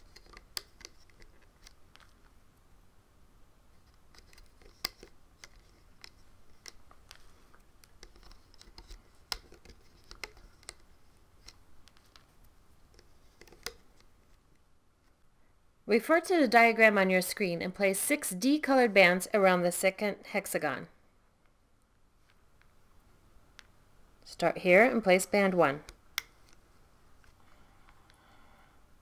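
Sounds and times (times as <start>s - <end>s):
rubber bands clicking on plastic pins: 0.0s - 2.3s, 3.9s - 14.1s.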